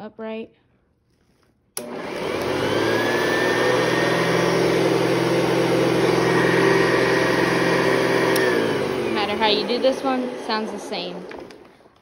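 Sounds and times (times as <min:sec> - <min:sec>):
vacuum cleaner switch click: 0:01.8 - 0:02.8, 0:08.2 - 0:08.7
vacuum cleaner motor whine: 0:01.8 - 0:12.0.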